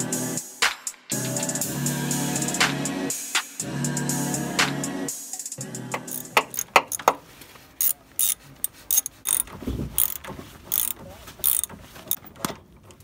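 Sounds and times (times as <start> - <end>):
ratchet wrench clicking: 6.0 - 7.1, 7.8 - 12.3.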